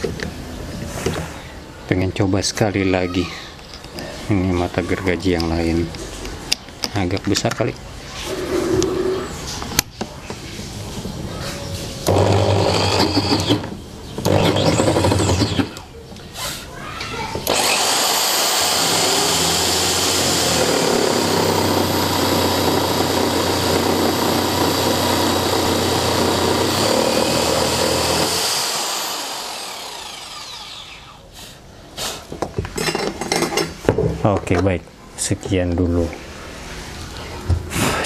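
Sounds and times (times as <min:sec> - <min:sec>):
jigsaw cutting wood: 0:12.1 - 0:15.8, 0:17.4 - 0:31.2.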